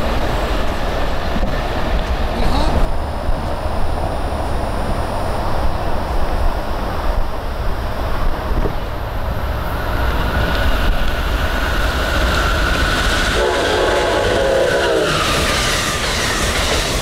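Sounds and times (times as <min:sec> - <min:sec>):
train rumble and whine: 0:00.0 - 0:17.0
train horn chord: 0:13.4 - 0:15.2.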